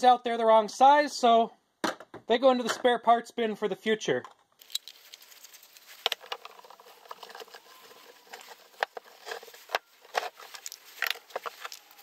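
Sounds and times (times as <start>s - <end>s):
plastic pipe fittings clicking: 6.0s - 12.0s.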